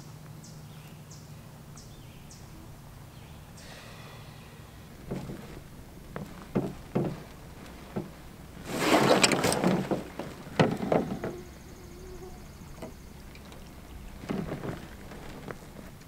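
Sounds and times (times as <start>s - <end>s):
gear rustling and scraping: 4.6s - 16.0s
knocks against canoe hull: 5.0s - 11.5s.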